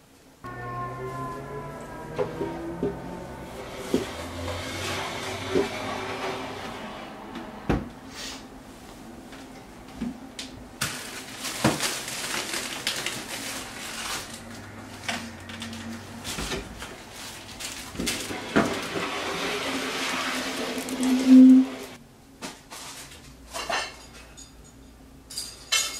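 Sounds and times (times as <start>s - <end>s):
bags rustling: 10.8s - 15.1s, 15.7s - 18.9s.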